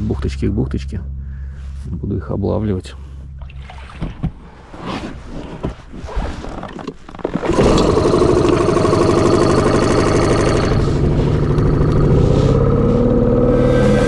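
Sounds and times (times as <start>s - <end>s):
knocks and clicks of gear: 5.5s - 12.2s
boat motor running: 6.7s - 14.0s.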